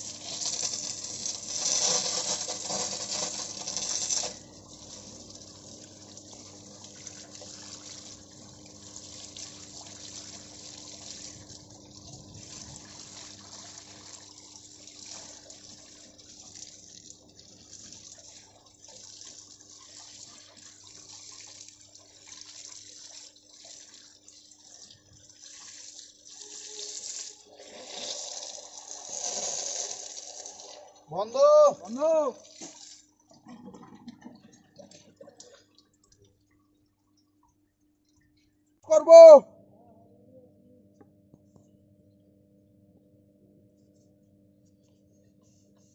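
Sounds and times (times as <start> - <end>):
oil running and splashing: 0.0 - 31.0.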